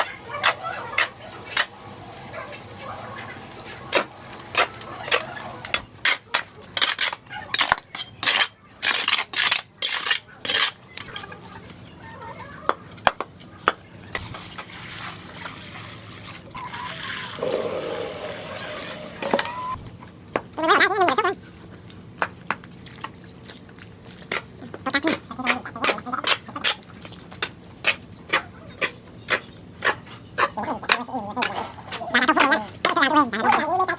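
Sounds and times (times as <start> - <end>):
shovels scraping concrete floor: 3.5 - 11.3, 17.4 - 19.8
water pouring from bucket: 14.3 - 19.3.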